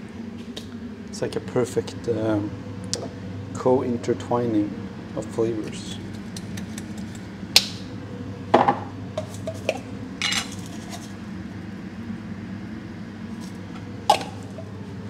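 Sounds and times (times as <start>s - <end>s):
utensils and dishes clinking: 9.2s - 11.0s.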